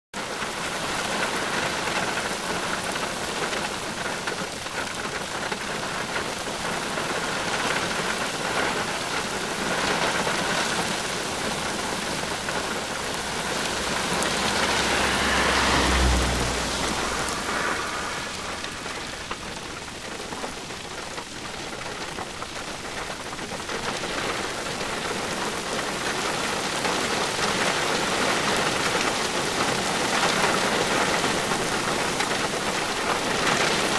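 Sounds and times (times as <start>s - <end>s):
heavy rain on a car: 0.2s - 33.9s
low rumble: 12.2s - 21.1s.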